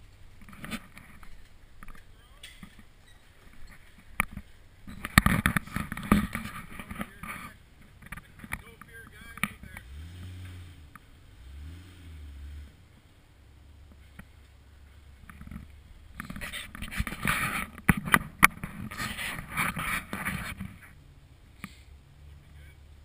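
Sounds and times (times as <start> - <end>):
engine revving under load: 9.4 - 13.0.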